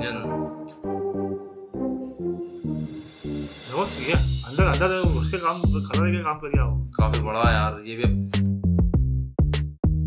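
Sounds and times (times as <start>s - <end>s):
short held music notes: 0.0s - 6.2s.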